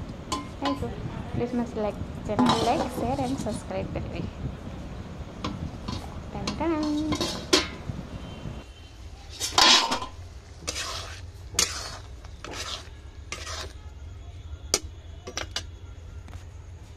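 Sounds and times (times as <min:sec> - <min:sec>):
metal ladle scraping a pan: 0:02.3 - 0:03.7, 0:05.4 - 0:07.9, 0:09.3 - 0:13.8.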